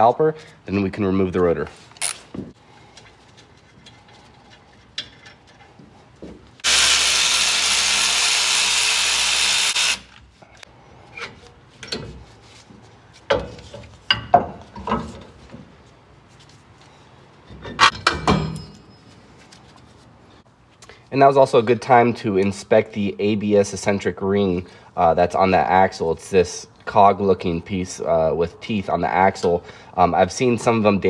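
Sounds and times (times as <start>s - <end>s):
power ratchet running: 6.6s - 10.1s.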